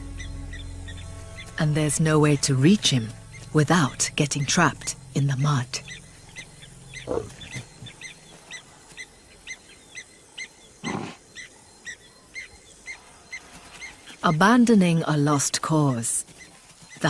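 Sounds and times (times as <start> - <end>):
low animal calls: 6.9 - 8.2, 10.8 - 11.6.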